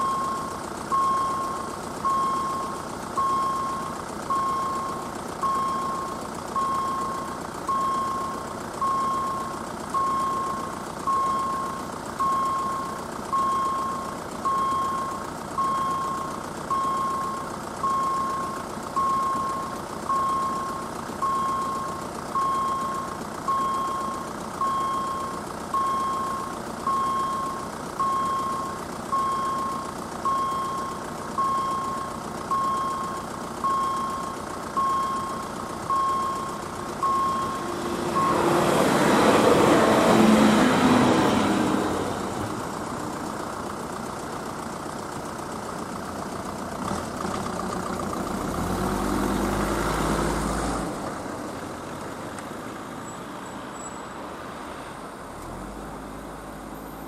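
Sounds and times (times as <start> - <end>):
level crossing signal beeping: 0.0 - 41.8.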